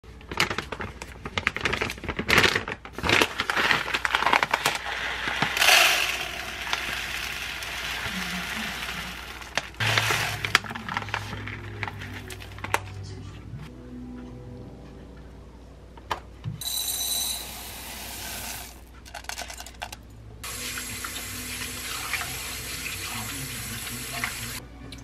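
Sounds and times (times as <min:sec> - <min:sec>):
plastic bag crinkling: 0:00.2 - 0:13.0
rice grains pouring into container: 0:03.3 - 0:12.7.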